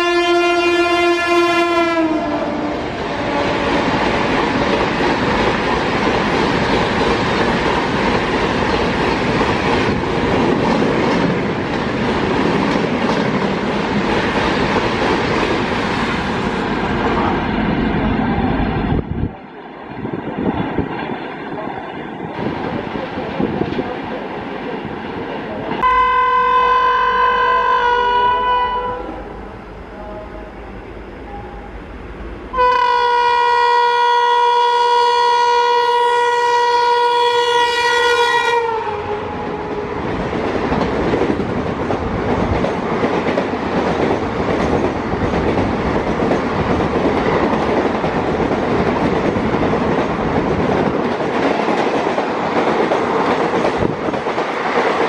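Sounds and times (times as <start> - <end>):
locomotive horn blasts: 0.0 - 3.6, 25.8 - 30.6, 32.5 - 39.5
train clickety-clack on track: 0.1 - 27.0, 32.6 - 55.0.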